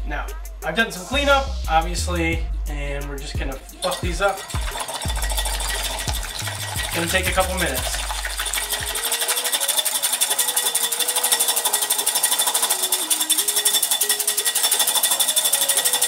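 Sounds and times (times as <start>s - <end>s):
whisk clicking in glass bowl: 3.8s - 16.0s.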